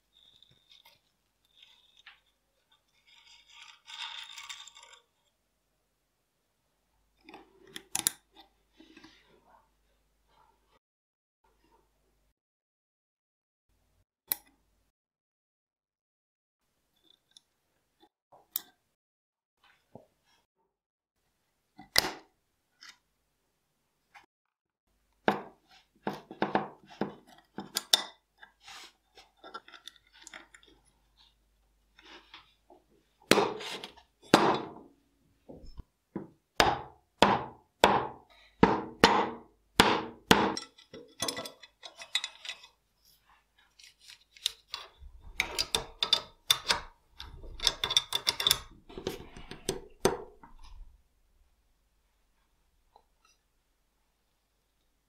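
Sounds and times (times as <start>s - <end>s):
metal tools clicking and scraping: 40.5s - 42.8s, 43.7s - 50.0s.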